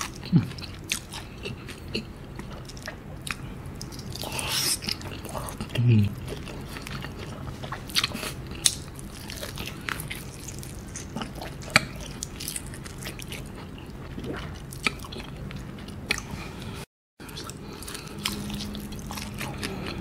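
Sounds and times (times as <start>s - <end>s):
chewing fried chicken: 0.0s - 20.0s.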